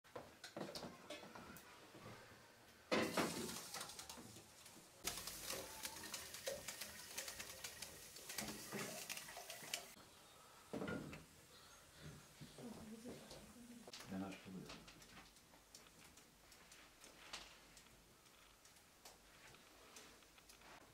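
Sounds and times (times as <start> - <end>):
metal pots clanking: 2.9 - 3.8
water pouring into teapot: 5.0 - 10.0.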